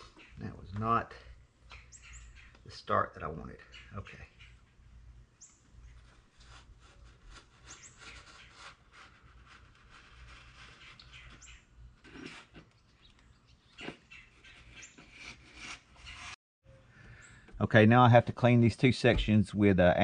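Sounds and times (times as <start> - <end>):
bird chirping: 0.0 - 3.0, 3.6 - 6.2, 7.6 - 8.6, 10.6 - 11.8, 12.7 - 15.2.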